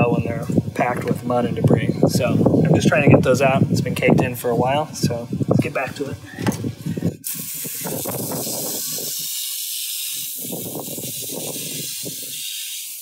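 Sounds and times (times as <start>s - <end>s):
hose nozzle spraying water: 7.2s - 13.0s
water spattering on machine: 7.2s - 13.0s.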